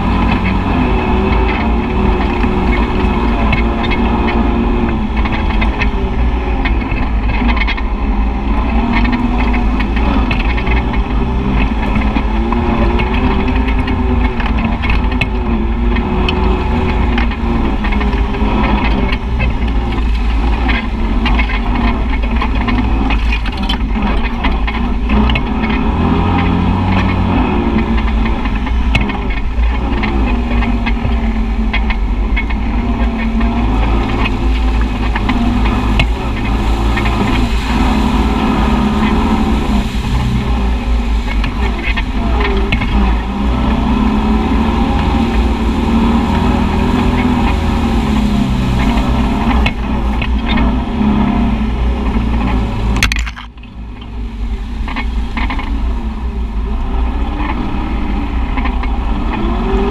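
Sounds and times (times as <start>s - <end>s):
utv engine running: 0.0s - 59.9s.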